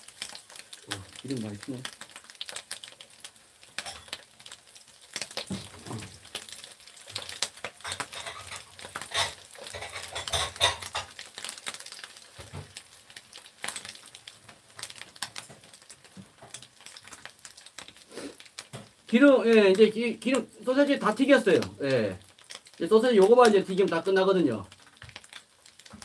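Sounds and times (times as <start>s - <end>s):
oil crackling and spattering: 0.0s - 26.0s
chopsticks scraping a pan: 7.0s - 11.6s.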